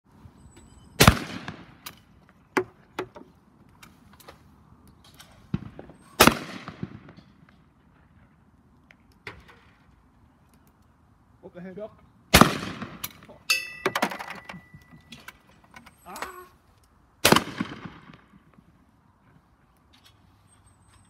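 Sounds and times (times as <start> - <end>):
shotgun shots with echo: 1.0 - 1.8, 5.6 - 7.2, 12.3 - 13.1, 17.2 - 18.3.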